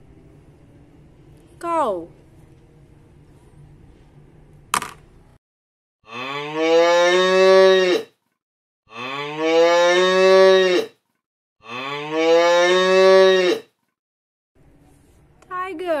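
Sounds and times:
cow mooing: 6.1 - 8.1, 8.9 - 10.9, 11.6 - 13.7.

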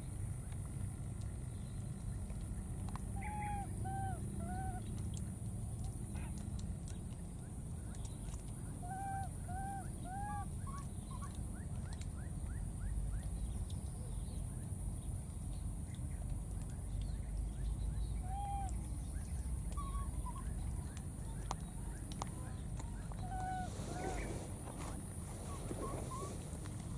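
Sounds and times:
constant high hiss: 0.0 - 26.9
steady low rumble: 0.0 - 26.9
short arched animal calls: 23.2 - 24.5.

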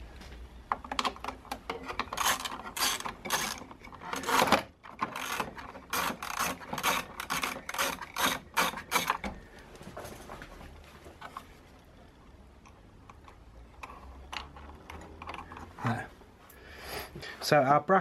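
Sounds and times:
ratcheting spanner clicking: 1.7 - 9.3.

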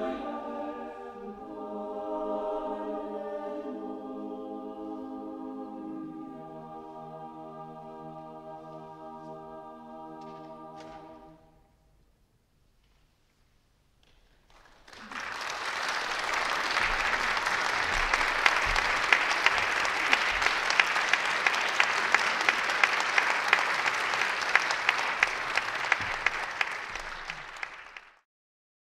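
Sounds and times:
audience applauding: 14.3 - 28.2.

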